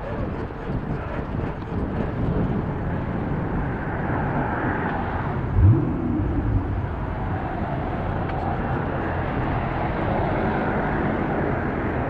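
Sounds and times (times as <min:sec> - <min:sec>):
road noise: 0:00.0 - 0:12.0
wind on microphone: 0:00.0 - 0:12.0.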